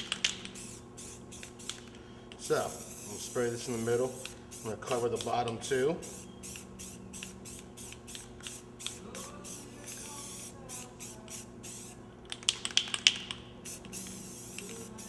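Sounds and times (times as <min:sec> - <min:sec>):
spray can hissing bursts: 0:00.2 - 0:01.8, 0:02.6 - 0:05.3, 0:06.0 - 0:12.0, 0:13.6 - 0:15.0.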